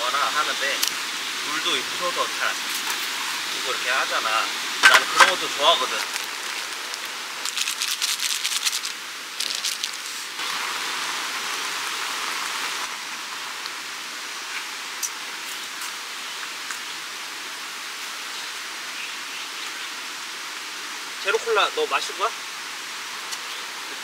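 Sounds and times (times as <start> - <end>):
rain hiss: 0.0 - 24.0
plastic packets crinkling: 4.8 - 10.4.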